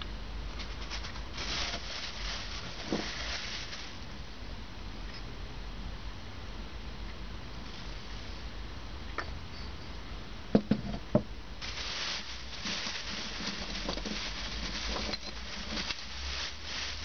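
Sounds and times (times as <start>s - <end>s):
plastic bag rustling: 0.6s - 4.1s, 11.6s - 17.0s.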